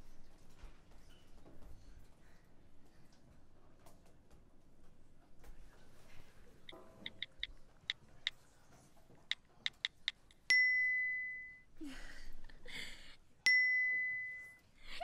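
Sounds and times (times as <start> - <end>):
smartphone keyboard taps: 7.0 - 7.5, 9.3 - 10.4
bright message chime: 10.5 - 11.7, 13.5 - 14.6.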